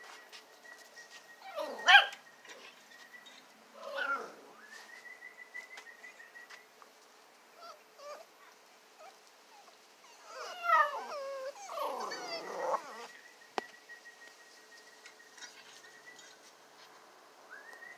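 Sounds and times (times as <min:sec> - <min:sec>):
puppy yipping: 0:01.4 - 0:02.2, 0:09.0 - 0:13.1
puppies whimpering: 0:07.6 - 0:08.3, 0:09.0 - 0:13.1.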